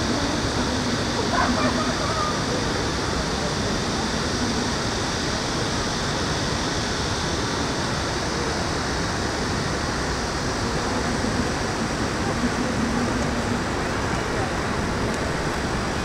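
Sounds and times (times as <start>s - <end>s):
urban hum: 8.4s - 16.0s.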